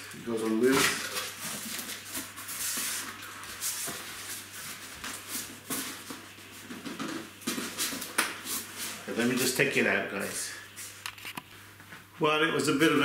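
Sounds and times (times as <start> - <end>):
cardboard and packing rustling: 0.2 - 9.8.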